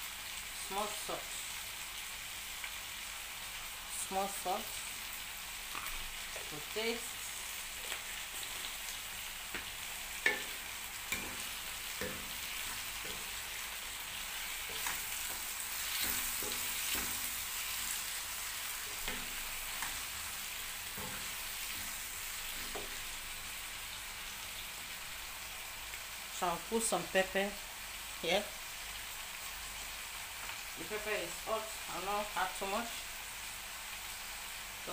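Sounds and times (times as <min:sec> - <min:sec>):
vegetables sizzling in a frying pan: 0:00.0 - 0:34.9
wooden spoon knocking pan: 0:09.5 - 0:13.4.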